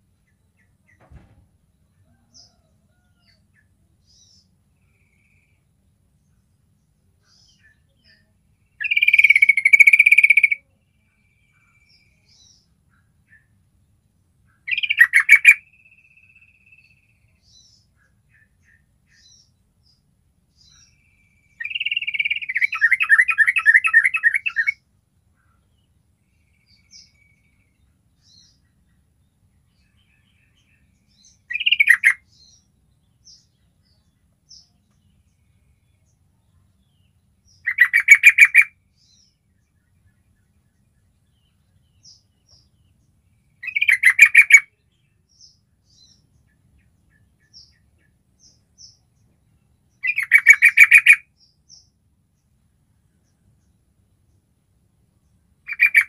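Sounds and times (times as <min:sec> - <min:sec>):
bird rapid chattering calls: 0:08.8 - 0:10.6, 0:31.5 - 0:32.2, 0:37.6 - 0:38.7, 0:43.6 - 0:44.7, 0:50.0 - 0:51.2, 0:55.7 - 0:56.0.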